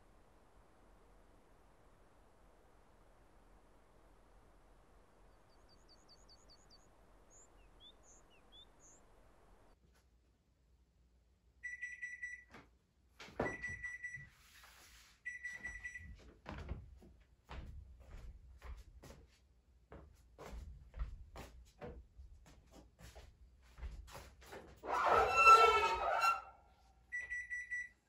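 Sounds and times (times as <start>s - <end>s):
small birds chirping: 5.1s - 9.8s
oven timer beeping: 11.6s - 12.5s, 27.1s - 28.0s.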